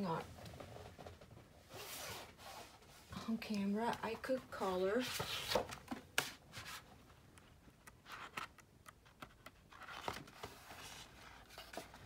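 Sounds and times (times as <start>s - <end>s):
paper pages rustling: 5.0s - 6.9s, 8.0s - 12.0s.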